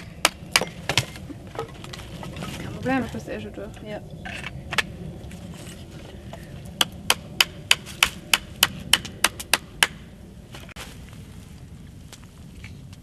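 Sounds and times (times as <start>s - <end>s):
hatchet chopping wood: 0.0s - 1.2s, 6.8s - 10.1s.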